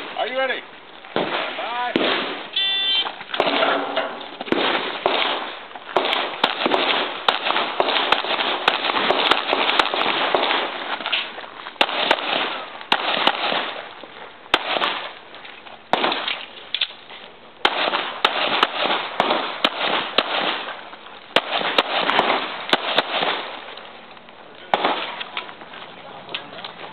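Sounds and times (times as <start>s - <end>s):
pistol shots with echo: 1.1s - 10.8s, 11.8s - 13.8s, 14.5s - 15.1s, 15.9s - 16.5s, 17.6s - 20.8s, 21.4s - 23.6s, 24.7s - 25.3s.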